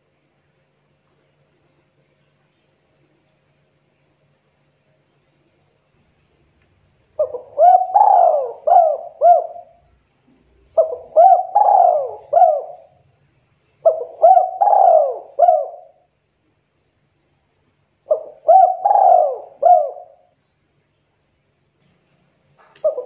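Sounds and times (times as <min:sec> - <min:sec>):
dove cooing: 0:07.2 - 0:09.9, 0:10.7 - 0:13.0, 0:13.8 - 0:16.1, 0:18.1 - 0:20.3.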